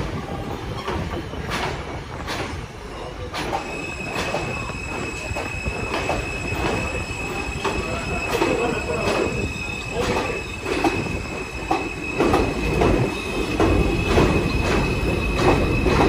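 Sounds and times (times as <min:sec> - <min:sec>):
low train rumble: 0:00.0 - 0:16.0
train wheels clacking over joints: 0:00.0 - 0:16.0
high-pitched wheel squeal: 0:03.6 - 0:16.0.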